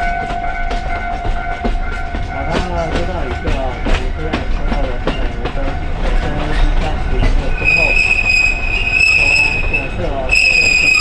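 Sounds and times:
train rumbling: 0.0 - 11.0
wheels clicking over rail joints: 0.0 - 11.0
high-pitched wheel squeal: 7.4 - 11.0.

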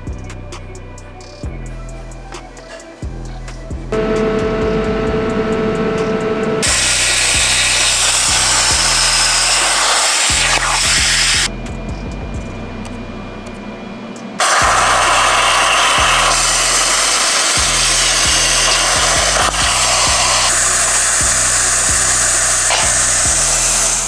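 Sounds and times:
music with low beat: 0.0 - 9.7, 10.3 - 17.0, 17.6 - 24.0
plasma cutter arc hissing: 6.6 - 11.5, 14.4 - 24.0.

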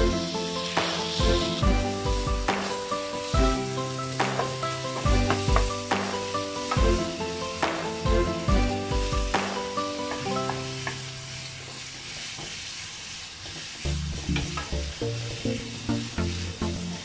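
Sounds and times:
background music: 0.0 - 11.4
meat sizzling in a frying pan: 0.0 - 17.0.

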